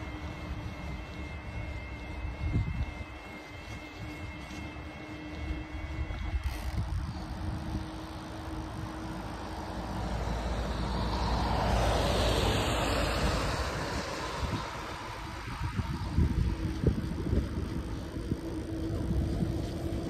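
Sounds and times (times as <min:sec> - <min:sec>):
faint steady hum: 0:00.0 - 0:20.0
car passing: 0:09.0 - 0:15.9.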